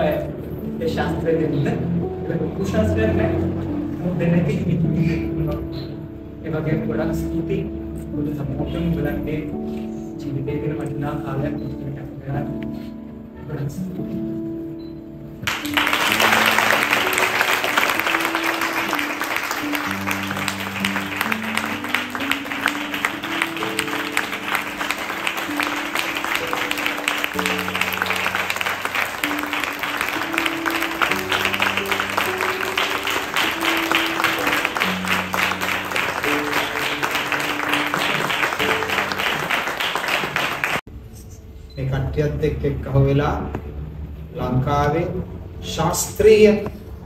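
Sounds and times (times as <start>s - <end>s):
slow instrumental music: 0.0s - 41.7s, 42.8s - 47.0s
audience applauding: 15.4s - 40.8s.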